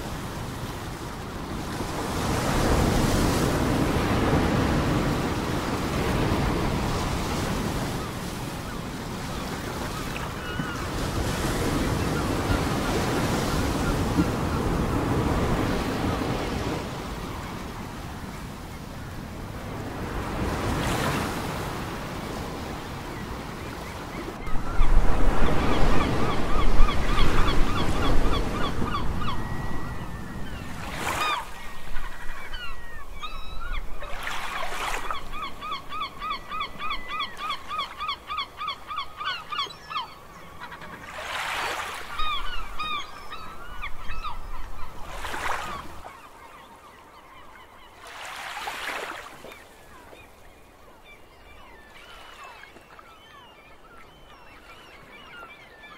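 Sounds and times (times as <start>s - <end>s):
waves breaking ashore: 40.8s - 43.0s, 45.0s - 46.2s, 48.0s - 50.0s.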